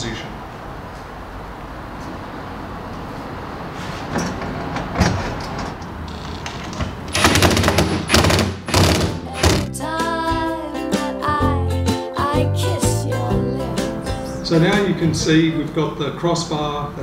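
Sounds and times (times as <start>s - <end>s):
impact driver bursts: 7.1s - 9.7s.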